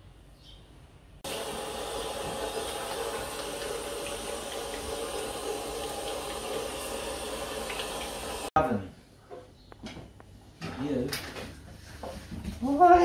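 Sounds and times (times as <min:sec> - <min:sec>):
tap running into metal sink: 0:01.3 - 0:08.5.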